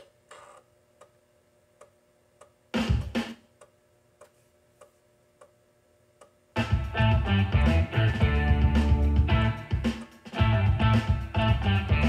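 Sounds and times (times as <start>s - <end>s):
ticking beat: 6.6s - 12.0s.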